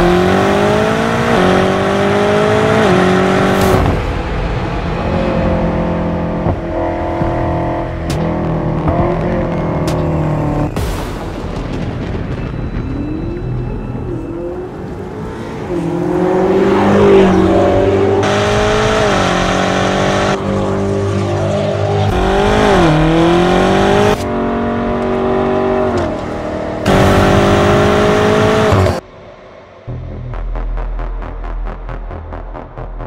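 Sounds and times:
car engine accelerating hard: 0:00.0 - 0:10.8, 0:14.4 - 0:29.0.

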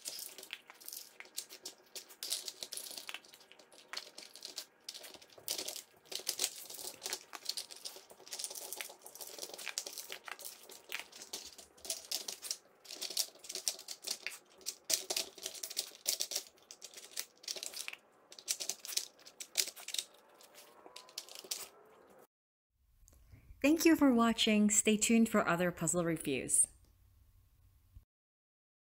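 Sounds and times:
plastic puzzle feeder clattering: 0:00.0 - 0:22.0.

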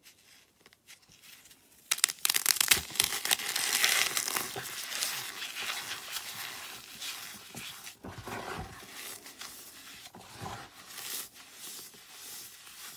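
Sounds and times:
floral foam crunching: 0:02.0 - 0:12.9.

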